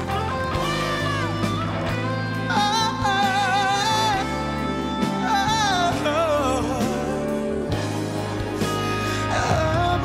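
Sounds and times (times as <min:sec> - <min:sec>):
live band playing: 0:00.0 - 0:10.0
man singing a ballad: 0:02.0 - 0:10.0.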